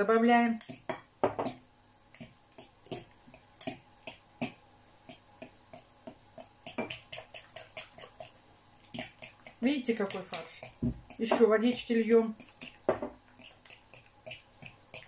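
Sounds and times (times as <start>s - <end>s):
metal utensil tapping glass bowl: 0.6s - 2.3s.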